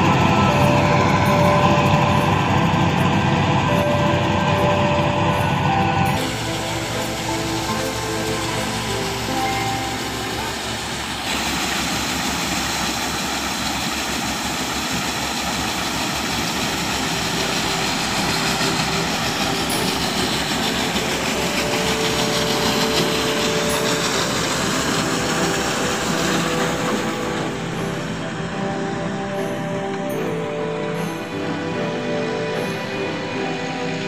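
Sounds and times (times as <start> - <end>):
combine harvester machine din: 0.0 - 31.4
hiss of pouring grain: 6.2 - 28.4.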